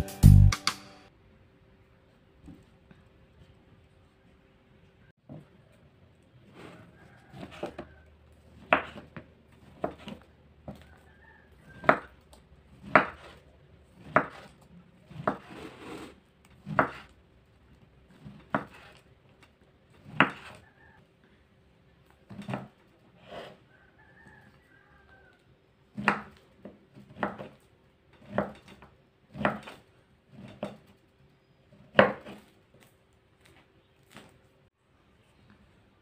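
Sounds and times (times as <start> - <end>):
knife slicing: 12.8 - 17.2.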